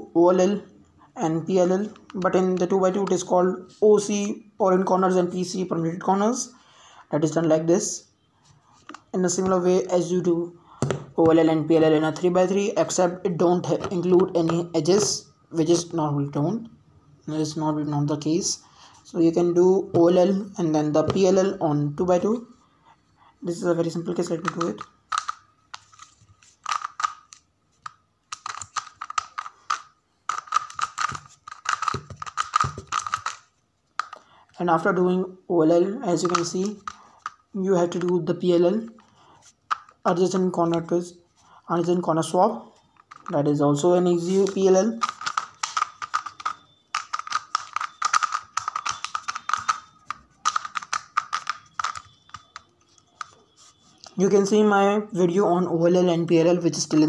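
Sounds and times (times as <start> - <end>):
puzzle cube clacking: 1.7 - 3.3, 10.8 - 15.9, 21.0 - 22.4, 23.7 - 34.3, 36.1 - 40.9, 42.8 - 54.2.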